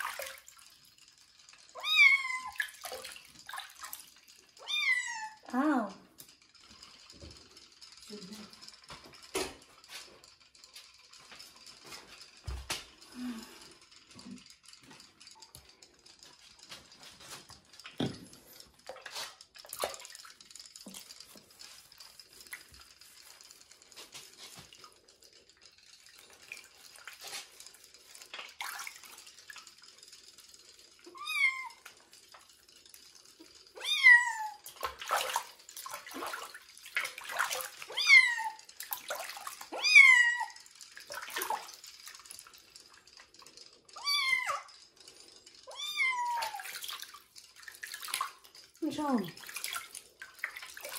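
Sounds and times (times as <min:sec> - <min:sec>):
water splashing and dripping: 0:00.0 - 0:00.8, 0:01.8 - 0:04.8, 0:17.7 - 0:23.3, 0:26.0 - 0:29.9, 0:34.5 - 0:43.4, 0:45.8 - 0:50.9
kitten meowing: 0:33.8 - 0:34.6, 0:39.7 - 0:40.5, 0:45.7 - 0:46.6.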